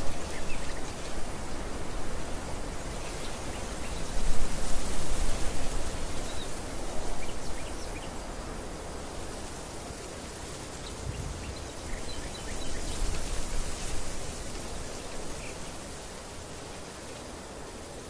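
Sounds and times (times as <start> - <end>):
wind buffeting microphone: 10.8 - 14.9.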